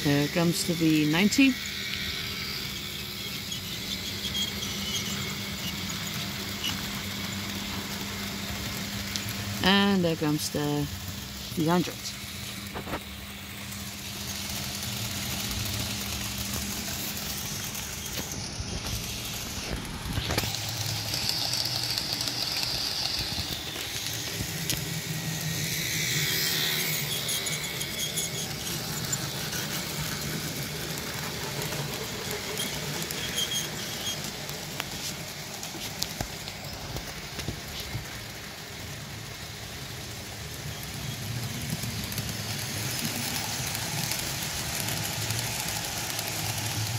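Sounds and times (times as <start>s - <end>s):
model train motor whirring: 0.0s - 46.9s
model train wheels clicking: 0.0s - 46.9s
high squeal: 0.6s - 6.8s, 25.8s - 29.8s, 32.5s - 34.4s.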